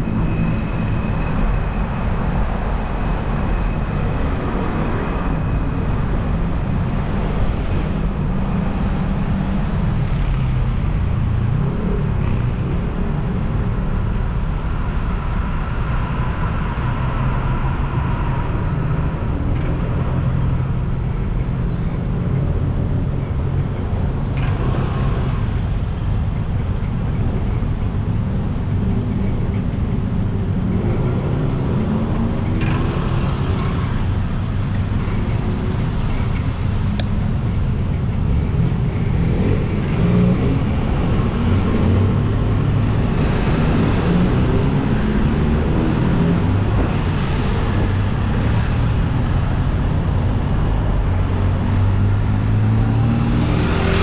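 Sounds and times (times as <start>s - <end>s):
brief high squeak: 21.6s - 23.4s, 29.2s - 29.6s
car and motorbike engines passing: 30.0s - 54.0s.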